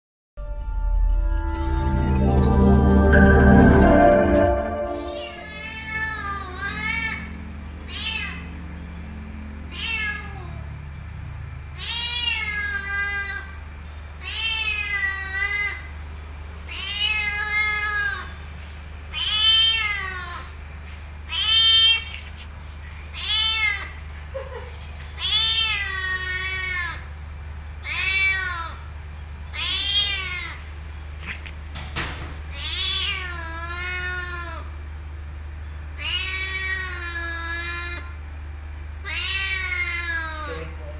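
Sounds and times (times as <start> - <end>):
cat meowing: 9.7 - 10.6, 23.2 - 24.0, 27.8 - 28.9, 29.5 - 30.6, 32.5 - 34.6, 36.0 - 38.1, 39.0 - 40.8.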